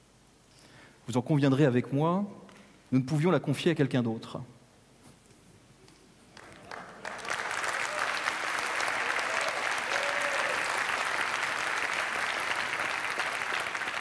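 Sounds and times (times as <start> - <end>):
crowd applauding: 6.4 - 14.0.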